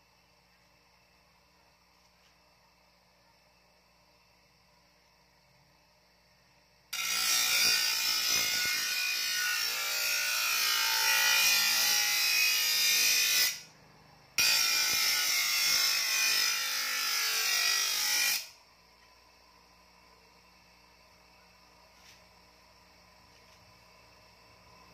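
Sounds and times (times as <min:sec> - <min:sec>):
bench grinder grinding metal: 0:07.0 - 0:13.7, 0:14.4 - 0:18.6.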